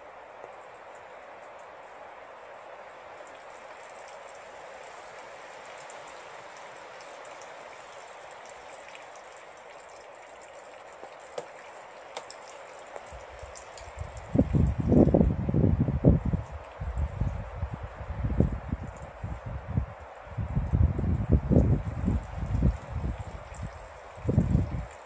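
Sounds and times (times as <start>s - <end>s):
rain hissing: 0.0s - 25.0s
faint drip ticks: 3.2s - 14.8s
wind buffeting microphone: 13.1s - 25.0s.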